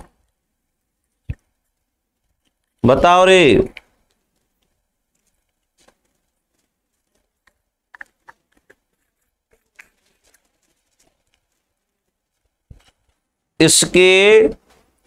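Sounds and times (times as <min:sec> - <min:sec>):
faint clicks and taps: 0:01.0 - 0:02.8, 0:03.7 - 0:13.4.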